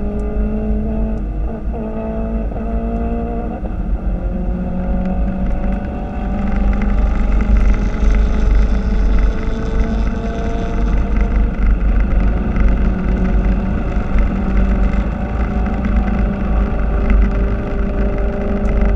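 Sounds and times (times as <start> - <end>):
car engine accelerating: 0.0 - 18.9
road and wind noise: 0.0 - 18.9.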